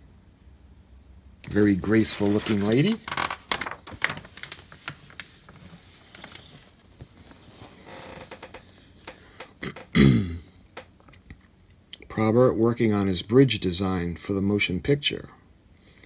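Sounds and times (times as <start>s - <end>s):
magazine pages rustling: 1.5s - 9.5s.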